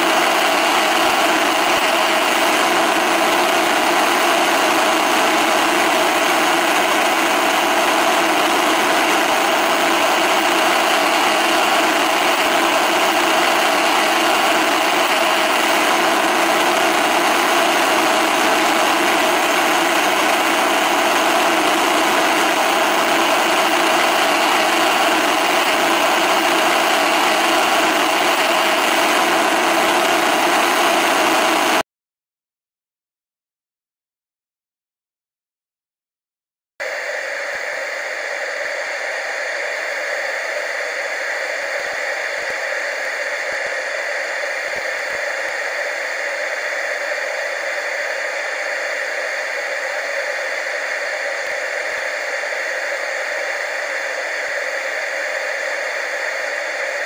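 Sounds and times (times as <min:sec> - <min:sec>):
television static hiss: 0:00.0 - 0:31.8.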